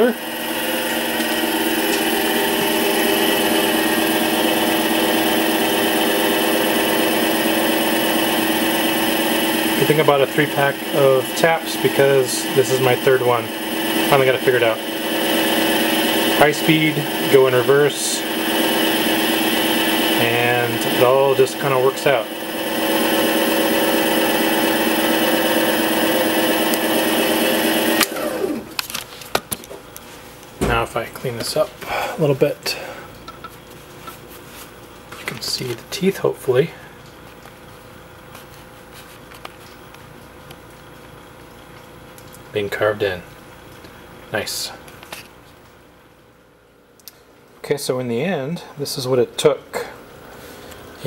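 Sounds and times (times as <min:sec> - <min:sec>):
lathe motor whine: 0:00.0 - 0:28.9.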